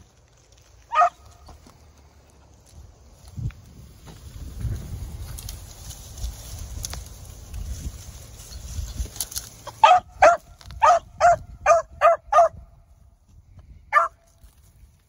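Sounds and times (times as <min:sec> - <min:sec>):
dog barking: 0:00.9 - 0:01.2, 0:09.8 - 0:12.6, 0:13.9 - 0:14.2.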